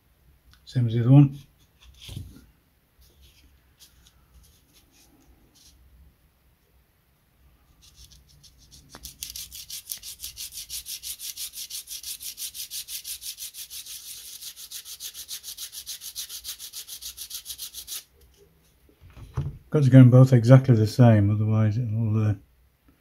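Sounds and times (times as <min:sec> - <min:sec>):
sandpaper rubbing wood: 0:07.8 - 0:18.1.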